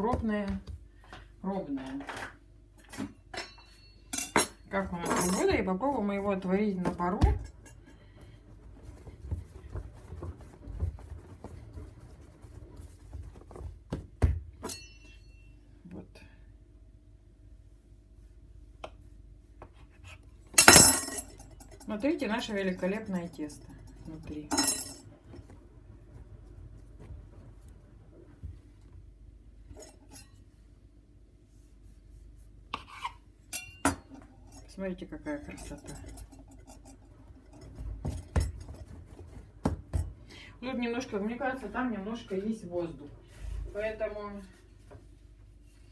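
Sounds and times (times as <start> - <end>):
hands patting dough on countertop: 0.0 - 1.3, 5.5 - 14.6, 18.7 - 20.0, 37.4 - 40.2
rubbing on countertop: 5.3 - 7.2, 8.0 - 14.0, 31.4 - 33.2
sharp ringing clinks: 14.7 - 15.6.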